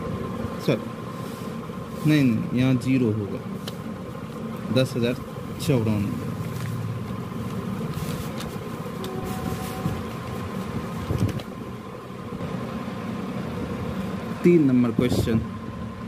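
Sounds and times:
low motor hum: 0:00.0 - 0:16.0
faint handling noises: 0:06.0 - 0:11.6.

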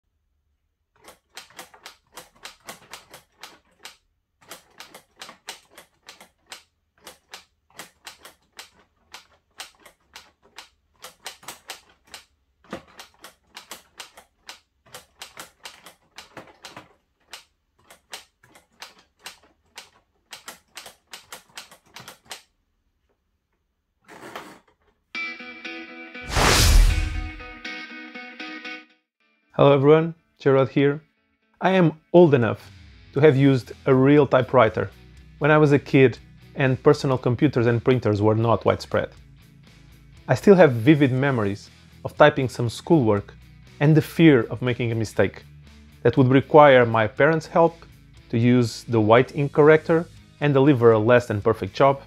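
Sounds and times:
plastic typewriter keys clacking: 0:01.0 - 0:22.5.

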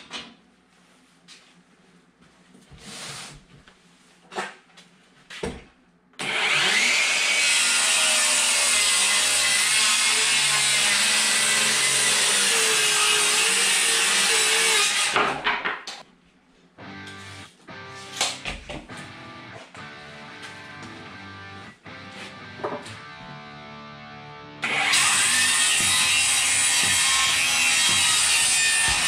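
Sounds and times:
power saw cutting wood: 0:06.2 - 0:15.4, 0:24.6 - 0:29.0.

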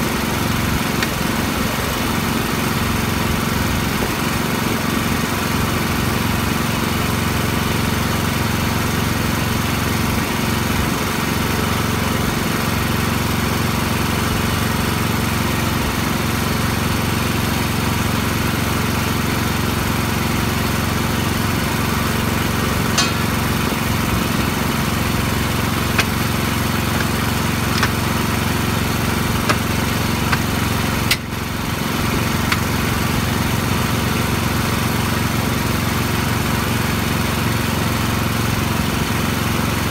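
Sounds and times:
small engine running: 0:00.0 - 0:39.9
sharp metal clinks: 0:23.0 - 0:23.5.

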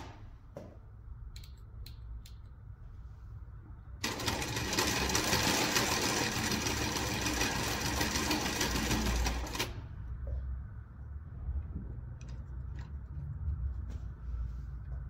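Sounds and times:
sewing machine rattling: 0:04.0 - 0:09.9.

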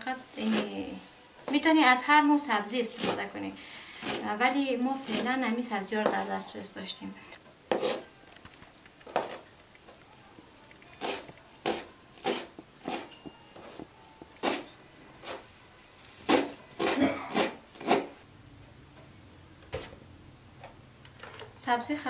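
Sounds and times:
knife chopping on plastic board: 0:11.0 - 0:14.6.

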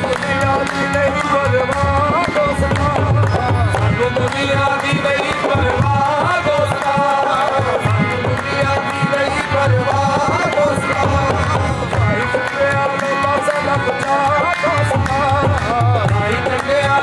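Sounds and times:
harmonium melody: 0:00.0 - 0:17.0
tabla rhythm: 0:00.0 - 0:17.0.

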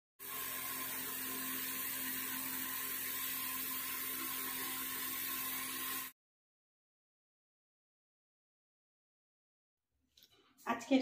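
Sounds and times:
small motor whirring: 0:00.2 - 0:06.1.

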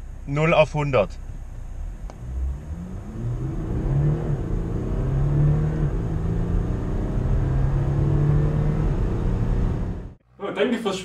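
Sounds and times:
diesel engine accelerating: 0:01.6 - 0:10.2.

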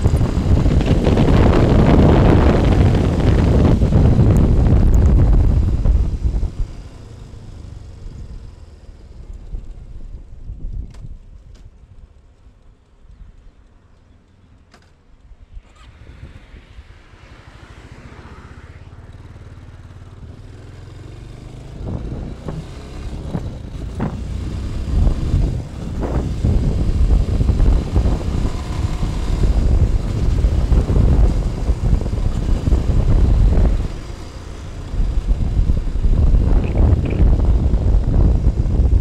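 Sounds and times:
wind buffeting microphone: 0:00.0 - 0:06.9, 0:21.6 - 0:39.0
motorcycle engine accelerating: 0:00.0 - 0:11.2, 0:17.3 - 0:39.0.

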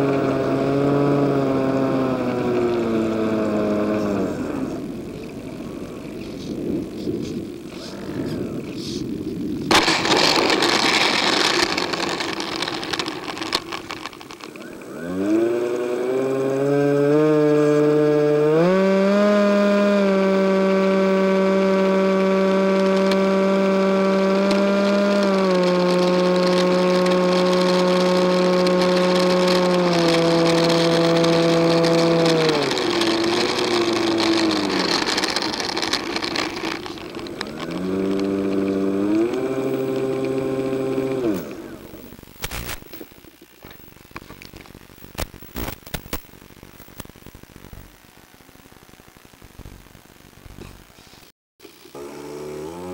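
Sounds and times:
model plane electric motor whining: 0:00.0 - 0:06.1, 0:09.7 - 0:42.2, 0:51.6 - 0:52.9.

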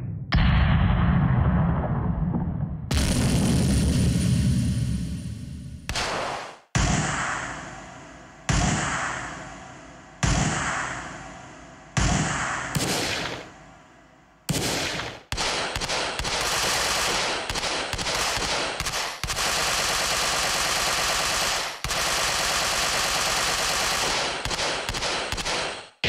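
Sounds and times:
machine-gun fire: 0:02.9 - 0:05.3, 0:05.9 - 0:07.7, 0:12.0 - 0:13.6, 0:14.5 - 0:26.0
single gunshots: 0:05.9 - 0:07.9, 0:12.0 - 0:13.6, 0:14.5 - 0:26.0.

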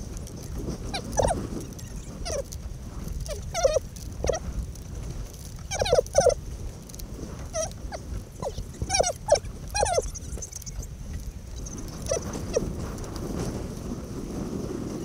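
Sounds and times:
wind buffeting microphone: 0:00.0 - 0:15.0
squeaky high-pitched vocal sounds: 0:07.5 - 0:07.7.

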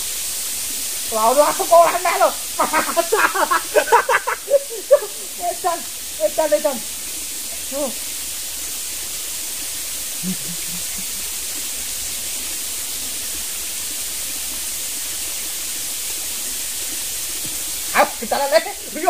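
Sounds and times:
stream water flowing: 0:00.0 - 0:19.0.

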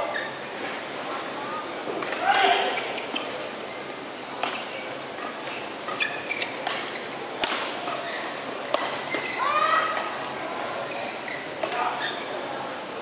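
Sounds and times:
shoes squeaking on court: 0:00.0 - 0:00.6, 0:02.6 - 0:03.4, 0:04.4 - 0:09.5, 0:10.8 - 0:12.4
rackets hitting shuttlecock: 0:06.6 - 0:08.0, 0:08.7 - 0:09.2.

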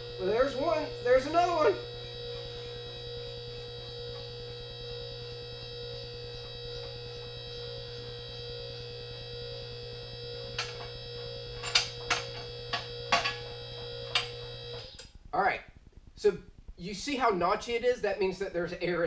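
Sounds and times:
hydraulic pump humming: 0:00.0 - 0:15.1.

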